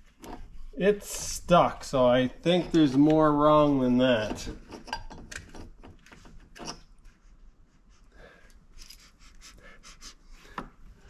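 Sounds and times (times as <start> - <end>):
soft breathing: 7.8 - 11.0.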